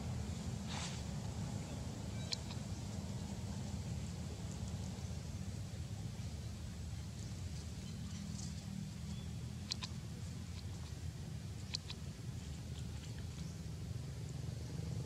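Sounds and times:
monkey gnawing on stick: 9.6 - 10.0, 11.6 - 12.0.

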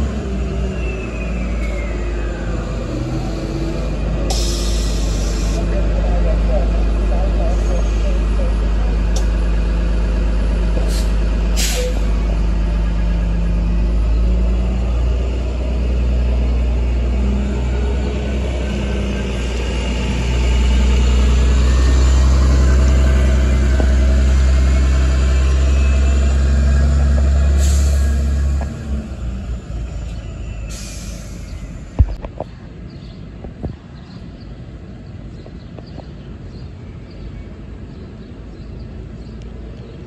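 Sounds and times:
bus engine pulling away: 0.0 - 40.0
air brake hisses: 4.3 - 5.6, 10.8 - 12.1, 27.6 - 28.1, 30.7 - 31.5.

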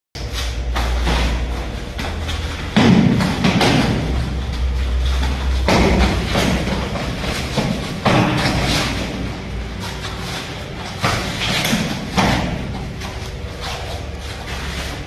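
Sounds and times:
feet hitting foam mats: 0.2 - 15.0
kicks and punches landing: 0.7 - 10.2, 10.8 - 13.2.

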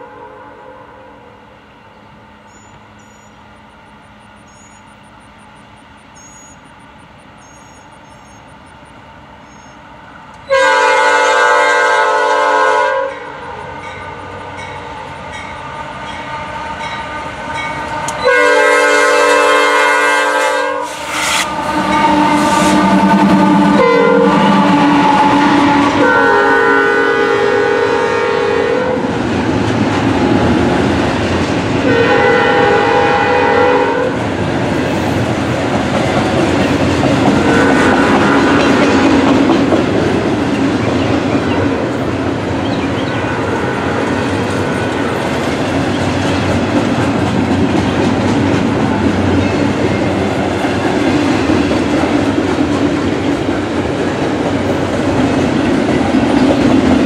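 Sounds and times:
locomotive air horn blasts: 0.0 - 1.3, 10.4 - 13.5, 15.7 - 29.2, 31.8 - 34.2, 37.4 - 39.1, 43.3 - 44.8
train rumbling and clattering past: 0.0 - 57.0.

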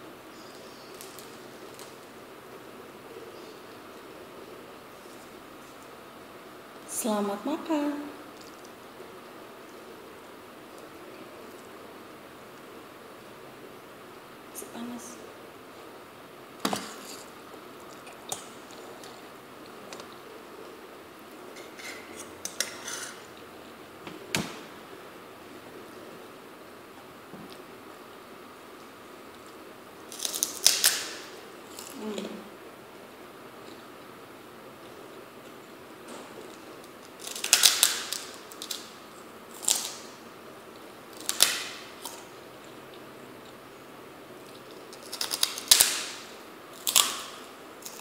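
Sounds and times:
crunching fried cracker: 29.4 - 32.0, 36.5 - 40.2, 41.1 - 42.4, 44.4 - 48.0.

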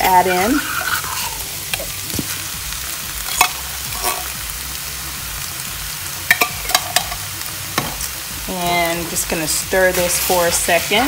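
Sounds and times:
meat sizzling in a skillet: 0.0 - 11.0
spoon clicking and scraping: 0.6 - 1.9, 3.3 - 4.3.

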